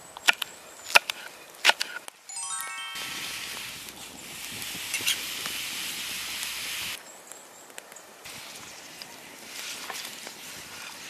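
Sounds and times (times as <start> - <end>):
stew boiling with steady hiss: 3.6 - 11.0.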